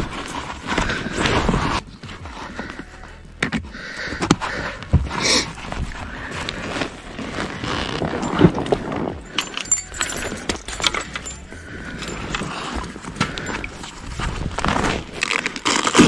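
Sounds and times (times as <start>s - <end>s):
fishing gear clinking and rattling: 0.0s - 16.0s.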